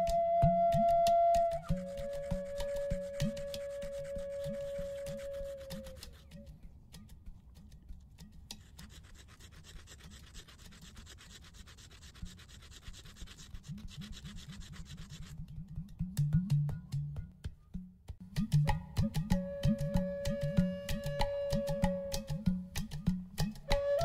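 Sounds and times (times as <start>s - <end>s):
rasping scrape on stone: 1.7s - 6.5s, 8.5s - 15.6s.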